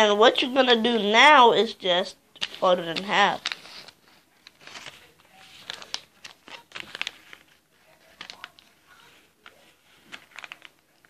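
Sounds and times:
paper rustling and crinkling: 2.4 - 11.0.

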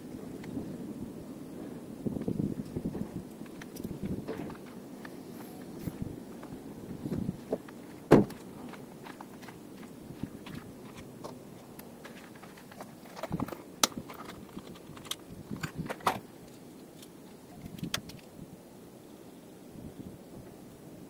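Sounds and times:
handling clicks and knocks: 10.4 - 16.3.

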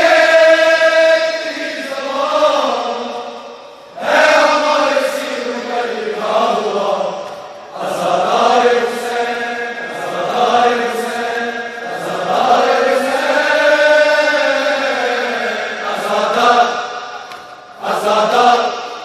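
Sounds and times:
men chanting: 0.0 - 19.0.

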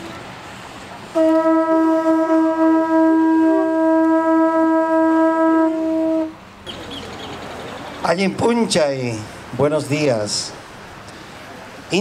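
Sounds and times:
horn blowing long note: 1.2 - 6.4.

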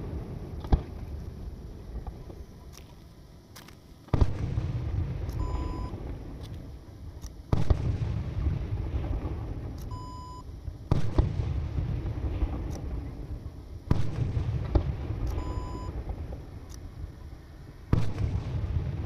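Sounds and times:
fireworks bangs: 0.0 - 2.4, 4.1 - 6.7, 7.5 - 9.8, 10.8 - 16.6, 17.8 - 19.0
low rumble after bangs: 4.1 - 9.9, 10.5 - 17.2, 17.8 - 19.0
short electronic beeps: 5.4 - 6.0, 9.9 - 10.4, 15.3 - 16.0.

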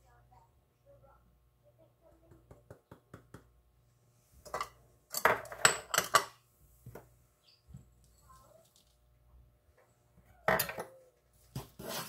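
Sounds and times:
glass dishes clinking: 4.5 - 6.3.

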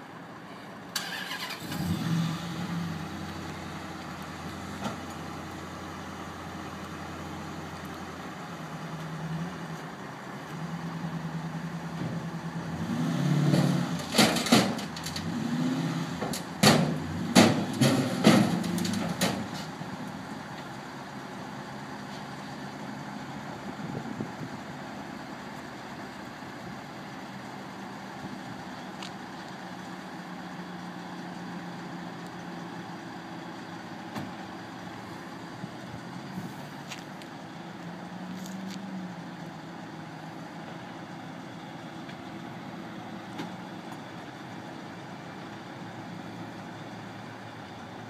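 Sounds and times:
car engine idling and revving: 0.0 - 48.0
metal clanks and bangs: 13.5 - 15.2, 16.2 - 19.7.

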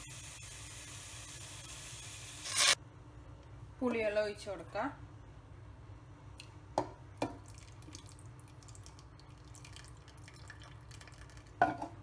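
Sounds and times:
liquid trickling and dripping: 7.3 - 11.6.

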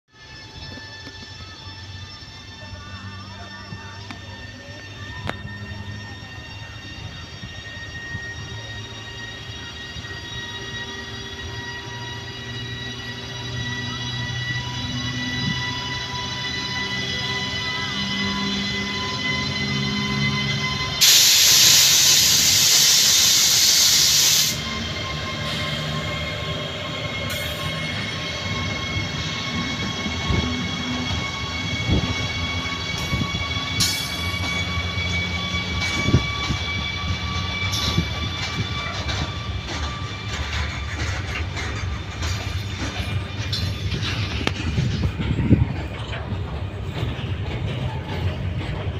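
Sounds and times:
locomotive high whine: 0.1 - 48.9
air hissing: 21.0 - 24.8
wheels clicking over rail joints: 37.7 - 48.9.

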